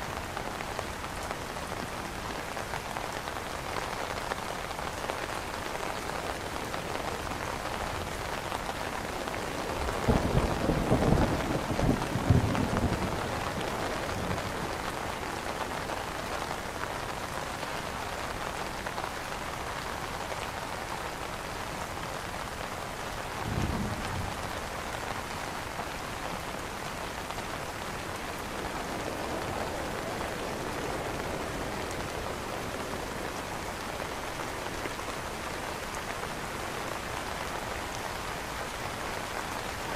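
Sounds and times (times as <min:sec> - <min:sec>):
rain on an umbrella: 0:00.0 - 0:39.9.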